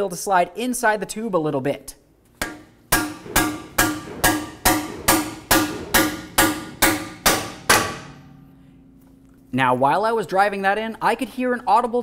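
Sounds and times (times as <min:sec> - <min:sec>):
hammer striking metal: 0:02.4 - 0:08.8.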